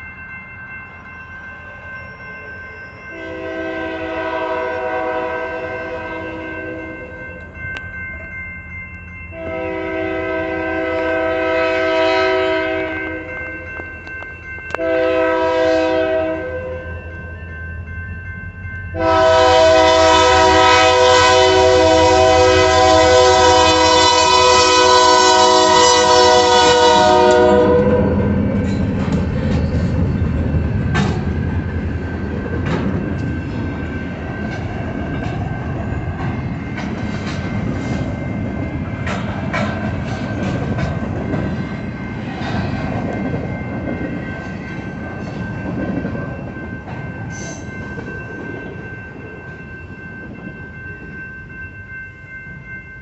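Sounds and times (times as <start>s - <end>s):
train air horn blasts: 3.2s - 7.0s, 9.4s - 13.3s, 14.8s - 16.8s, 19.0s - 28.3s
train wheels clacking over rails: 28.5s - 35.5s, 36.1s - 48.7s.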